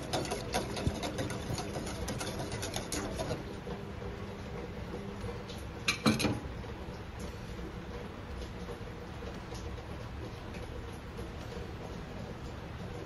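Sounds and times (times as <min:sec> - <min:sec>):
whisk clinking in metal pot: 0:00.0 - 0:03.5.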